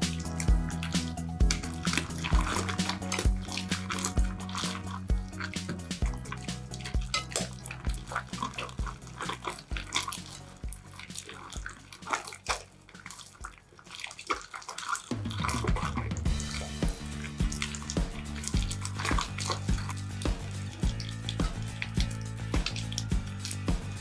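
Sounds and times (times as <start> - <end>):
slime squelching and popping: 0.0 - 24.0
soft background music: 0.0 - 24.0.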